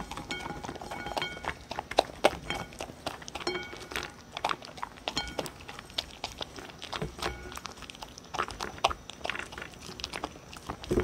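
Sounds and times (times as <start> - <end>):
food clinking against bowl: 0.0 - 4.3, 5.1 - 5.7, 7.0 - 7.7
dog crunching kibble: 0.0 - 11.0.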